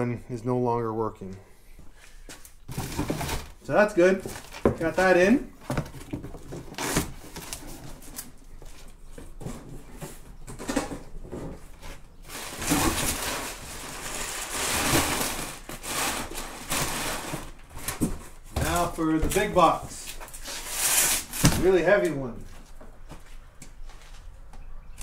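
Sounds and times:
packing paper rustling: 11.8s - 22.1s.

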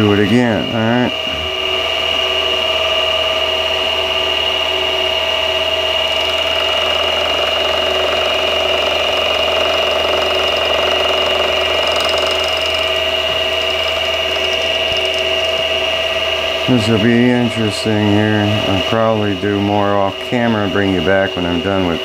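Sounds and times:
milling machine spindle whine: 0.0s - 22.0s
cutter cutting metal: 0.5s - 17.3s.

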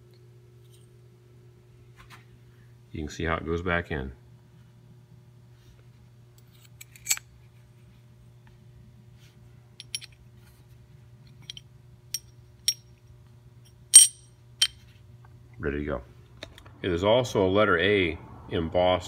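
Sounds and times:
steady low hum: 0.0s - 19.0s
metal washers clicking: 9.8s - 10.2s, 14.0s - 14.8s.

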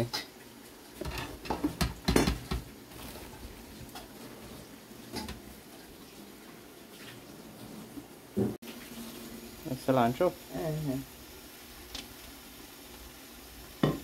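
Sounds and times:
kitchen items clattering: 1.0s - 5.6s.

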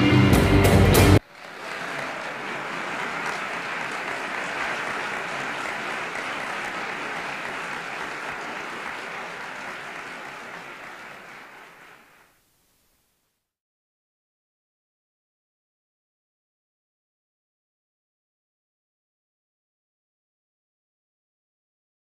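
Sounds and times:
audience applauding: 0.9s - 12.5s.

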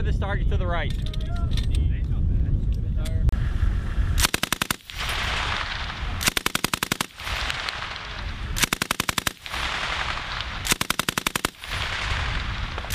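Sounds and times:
machine gun bursts: 4.2s - 7.9s, 8.6s - 12.2s.

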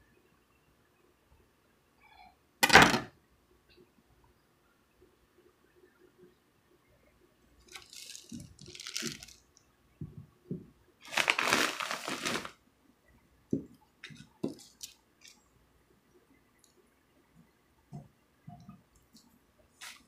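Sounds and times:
parchment paper crinkling: 7.6s - 9.4s, 11.0s - 12.6s, 14.0s - 15.4s.

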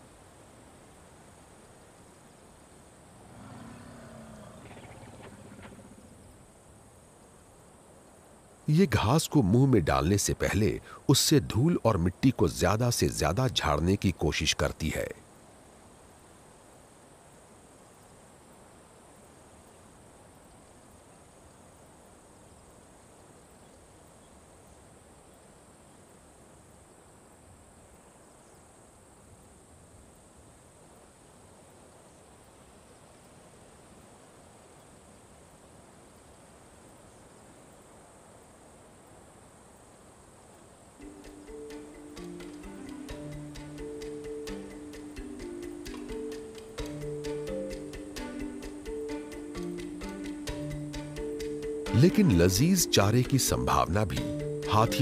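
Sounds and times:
faint steady hiss: 0.0s - 55.0s
low-pitched animal call: 3.2s - 6.4s
high-pitched insect drone: 41.0s - 55.0s.

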